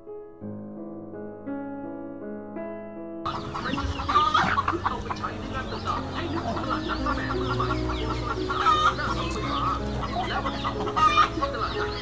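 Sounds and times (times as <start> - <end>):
hens clucking: 3.3 - 12.0.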